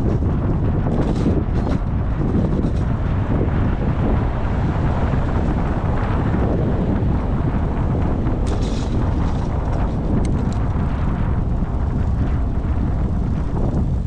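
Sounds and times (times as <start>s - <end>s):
wind on microphone: 0.0s - 14.0s
high rustle: 8.4s - 10.5s.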